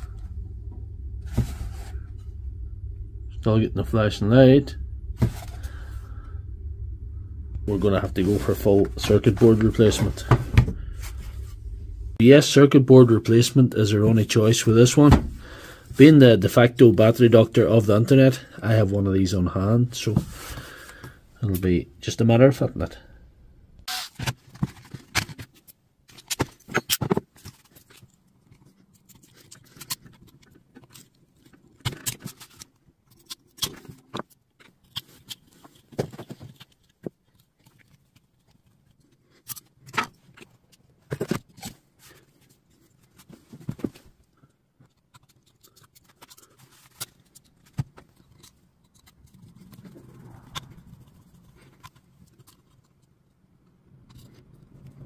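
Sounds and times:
plastic parts and tools clattering: 24.1 - 53.4.

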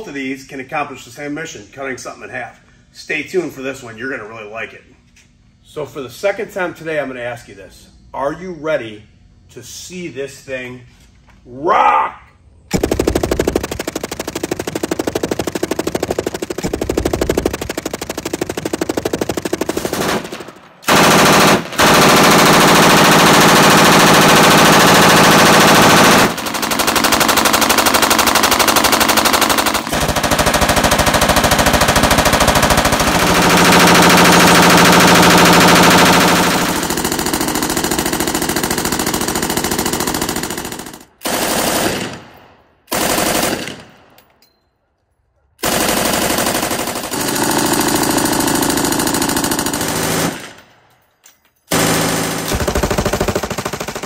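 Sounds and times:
machine gun automatic fire: 12.7 - 44.2, 45.6 - 50.8, 51.7 - 54.0.

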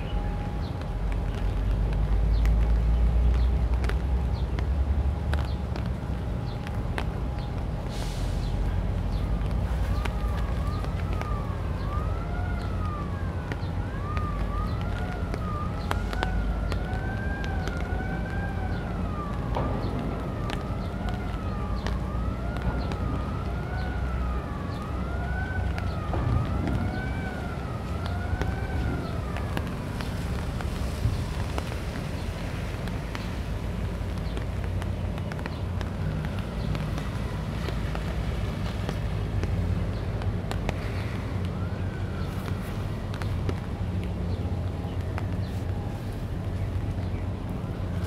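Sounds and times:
wailing siren: 0.0 - 48.0
low rumble: 17.9 - 37.5.

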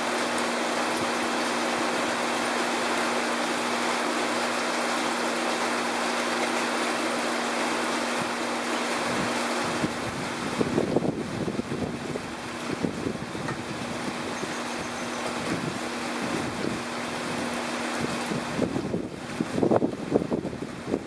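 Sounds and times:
rain falling on water: 0.0 - 21.0
wind buffeting microphone: 9.0 - 21.0.

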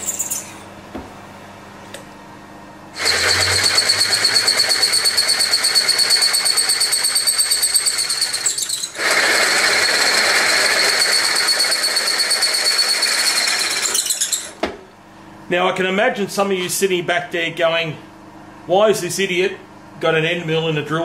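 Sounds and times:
drill cutting metal whine: 3.0 - 14.6.

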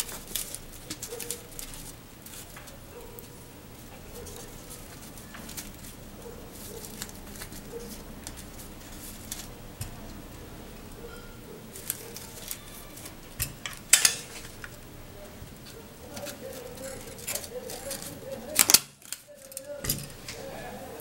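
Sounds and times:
paper strips rustling: 0.0 - 21.0.

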